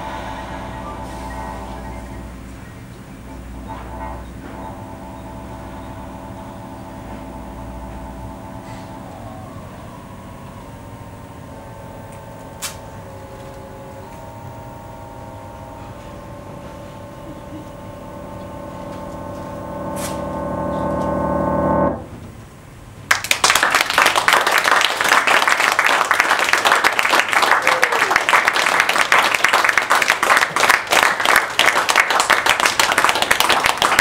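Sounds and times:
audience applause: 0:23.1 - 0:34.0.

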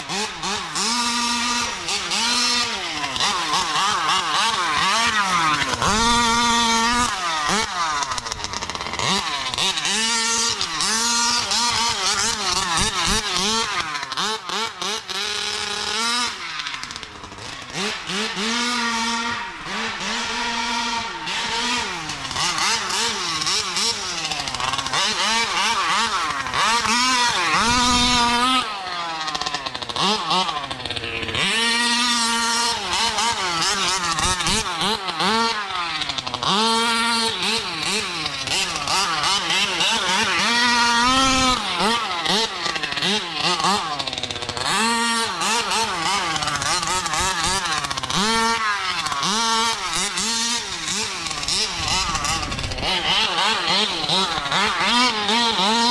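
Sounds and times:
two-stroke engine revving: 0:00.0 - 0:55.9.

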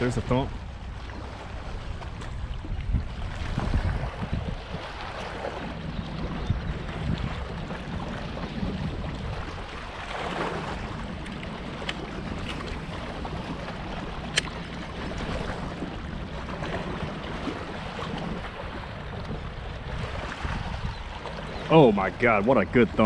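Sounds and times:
water lapping: 0:00.0 - 0:23.0
wind on microphone: 0:00.0 - 0:23.0
sharp click: 0:14.3 - 0:14.6.

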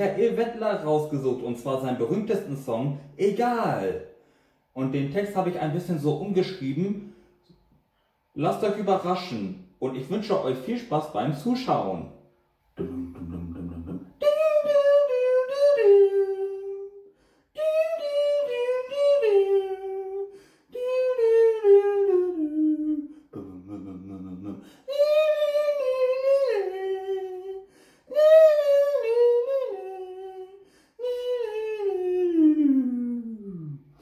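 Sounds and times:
low vocal sound: 0:12.7 - 0:34.0
man humming a wordless tune: 0:12.8 - 0:34.0.

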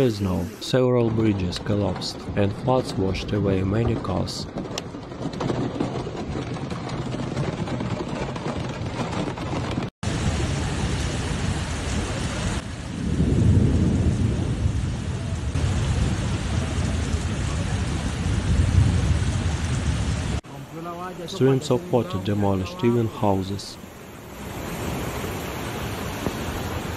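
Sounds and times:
floodwater rushing with rumble: 0:00.0 - 0:26.9
heavy rain: 0:10.0 - 0:26.9.

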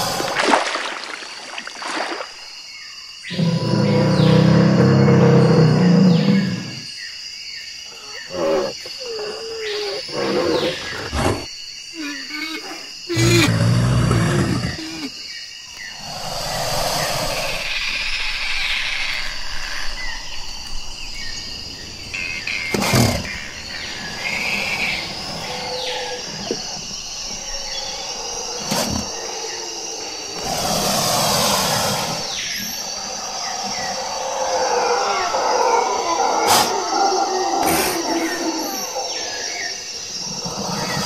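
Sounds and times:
high insect buzz: 0:00.0 - 0:41.0
mix of animal sounds: 0:22.2 - 0:41.0.

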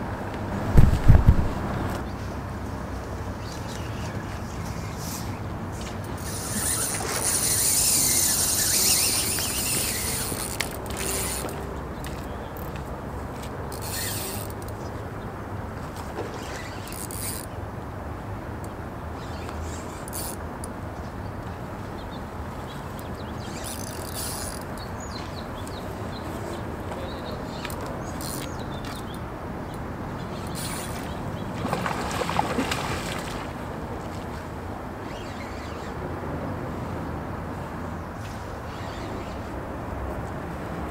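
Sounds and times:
fishing rod cast: 0:05.0 - 0:12.8, 0:13.7 - 0:14.8, 0:15.8 - 0:17.6, 0:30.4 - 0:33.6
fishing reel gears whirring: 0:06.0 - 0:12.7, 0:13.7 - 0:14.8, 0:16.3 - 0:17.6, 0:19.2 - 0:20.7, 0:23.4 - 0:24.9, 0:27.6 - 0:29.2, 0:30.3 - 0:31.1, 0:35.0 - 0:36.0, 0:38.7 - 0:39.5
lure splashing in water: 0:06.1 - 0:11.6, 0:30.4 - 0:34.5.

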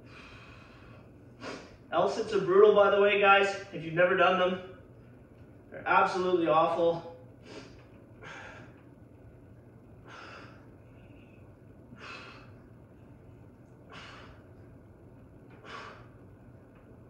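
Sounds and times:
man breathing hard: 0:00.0 - 0:01.8, 0:07.4 - 0:08.8, 0:10.0 - 0:12.7, 0:13.9 - 0:14.6, 0:15.5 - 0:16.3.

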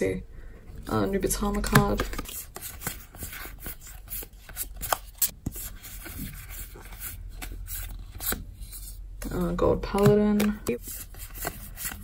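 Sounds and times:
trading cards rubbing and flicking: 0:01.7 - 0:09.0, 0:10.0 - 0:12.0.

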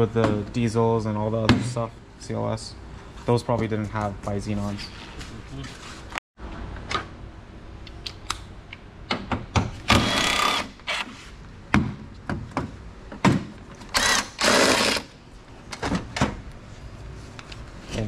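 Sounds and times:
power ratchet bursts: 0:09.9 - 0:11.0, 0:13.9 - 0:15.1.

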